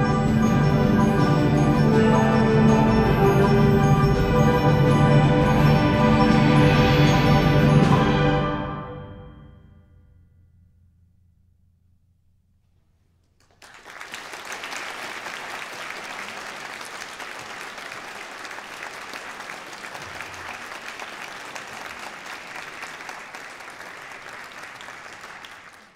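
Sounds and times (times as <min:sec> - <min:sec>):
audience applauding: 0:13.4 - 0:25.9.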